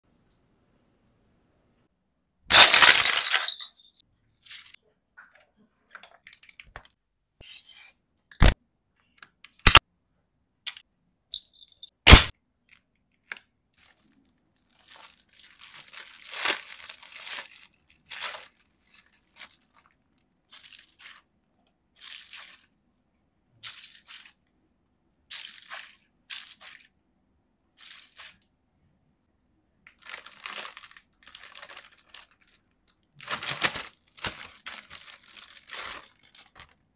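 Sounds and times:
plastic bag handled: 2.5s - 3.9s, 13.8s - 21.2s, 30.0s - 32.6s, 33.2s - 36.8s
plastic packaging crunch: 2.5s - 3.9s, 13.8s - 21.2s, 29.9s - 36.8s
soft crinkling and squishing: 12.5s - 24.6s, 29.8s - 36.9s.

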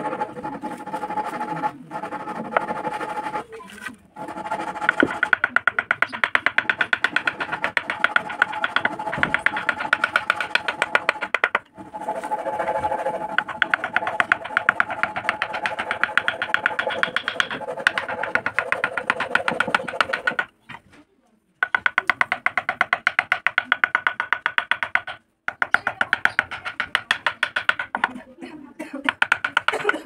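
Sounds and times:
chisel ticking on wood: 4.4s - 11.7s, 13.1s - 20.5s, 21.6s - 28.2s, 29.1s - 30.0s.

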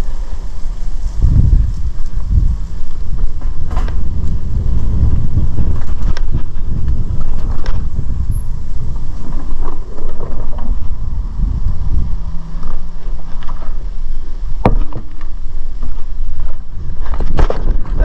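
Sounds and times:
bike tyre rumble on dirt: 0.0s - 18.0s
wind buffeting microphone: 0.0s - 18.0s
bike knocks: 3.1s - 4.4s, 14.6s - 15.4s.

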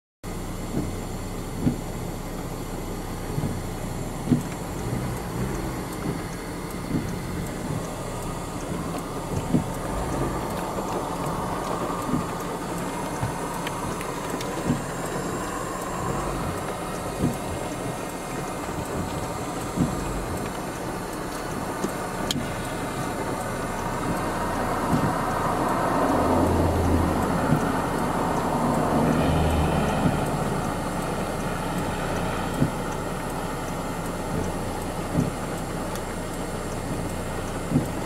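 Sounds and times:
low thumps: 3.4s - 33.1s.

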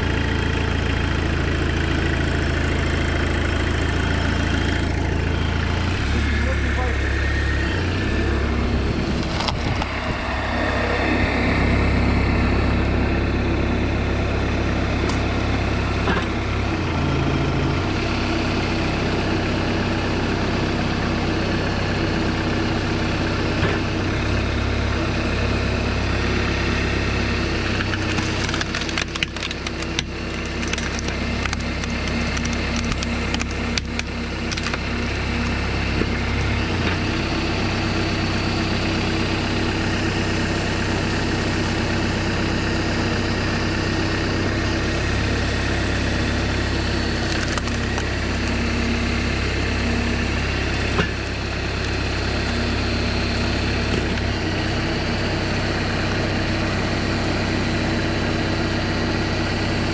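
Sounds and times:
tractor engine running: 0.0s - 59.9s
wood cracking and splintering: 27.5s - 37.3s, 45.6s - 54.9s.

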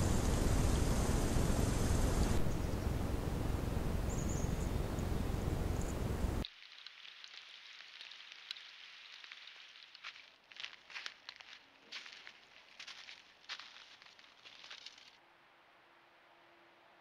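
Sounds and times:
steady loud hiss: 0.0s - 6.4s
animals rustling over brush: 4.6s - 15.2s.

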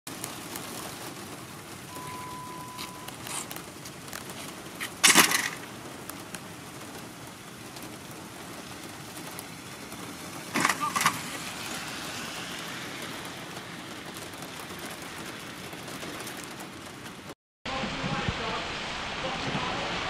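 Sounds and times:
rain pattering on a car: 0.1s - 20.0s
steady beep: 1.9s - 3.2s
loud sudden noise: 17.7s - 20.0s.

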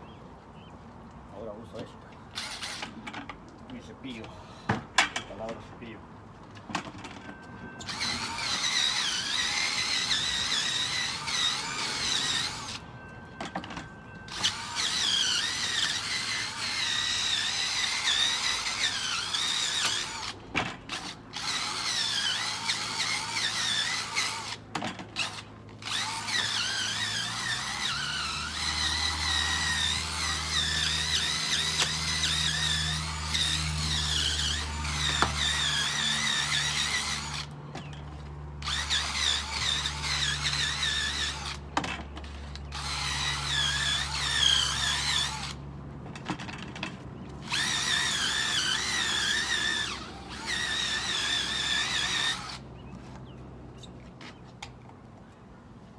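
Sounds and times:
cordless drill whining: 7.2s - 24.6s, 25.2s - 37.5s, 38.6s - 41.6s, 42.2s - 45.6s, 47.4s - 52.6s.

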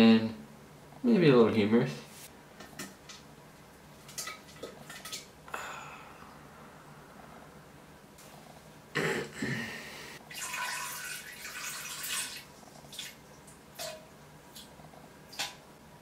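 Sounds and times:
splash into toilet water: 10.3s - 13.2s
water splashing and trickling: 10.3s - 14.6s
water drips: 10.3s - 15.6s.

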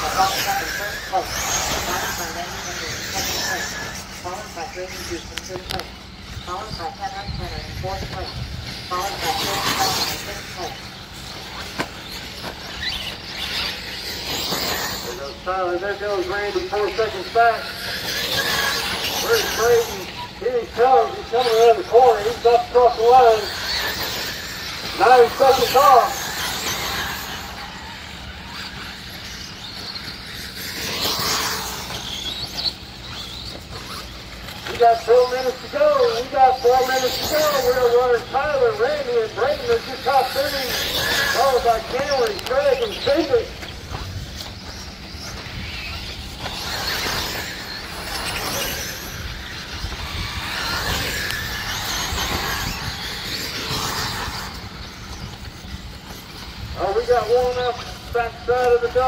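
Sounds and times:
outdoor rush: 0.0s - 59.0s
rc car motor and tyre whine: 0.0s - 59.0s.

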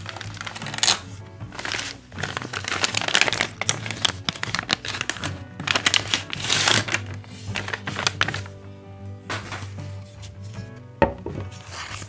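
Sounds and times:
plastic and paper crinkling: 0.0s - 8.6s, 9.3s - 10.7s, 11.4s - 12.0s
background music: 0.0s - 12.0s.

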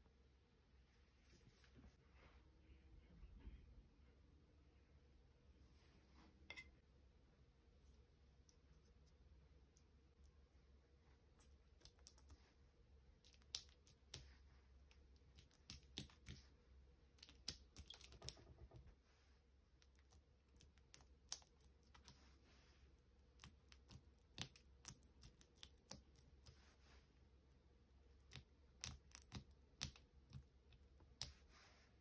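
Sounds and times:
fingertips tapping dough: 13.2s - 16.5s, 28.2s - 31.5s.

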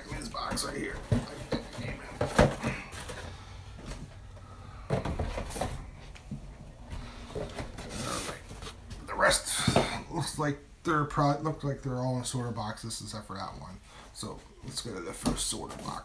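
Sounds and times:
cardboard rustling: 0.1s - 6.4s
cardboard boxes knocking: 0.4s - 3.3s.

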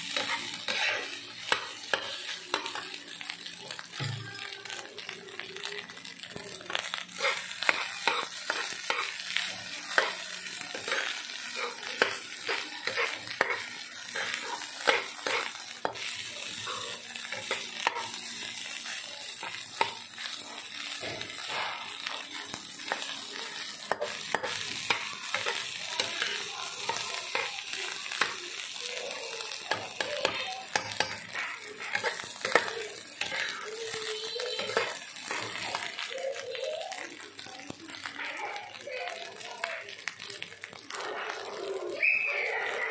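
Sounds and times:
metal spoon scraping a pan: 0.0s - 2.9s, 7.1s - 18.7s, 20.9s - 28.4s, 29.7s - 36.0s, 40.9s - 41.6s
rice sizzling in a frying pan: 0.0s - 42.9s.

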